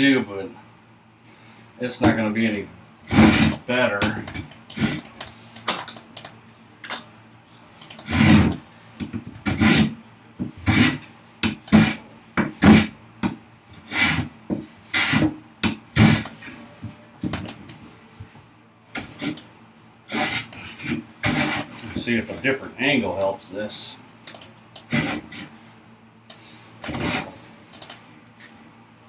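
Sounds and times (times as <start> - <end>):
hand plane rasping on wood: 3.1 - 3.6, 8.1 - 8.6, 9.4 - 9.9, 10.6 - 11.0, 11.7 - 12.0, 13.9 - 14.3, 14.9 - 15.3, 16.0 - 16.3, 20.1 - 21.8, 24.9 - 25.5, 26.8 - 27.4.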